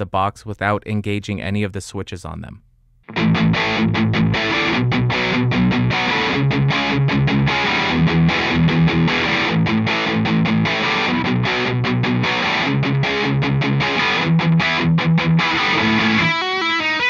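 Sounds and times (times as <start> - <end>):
distorted electric guitar riff: 3.0 - 17.0.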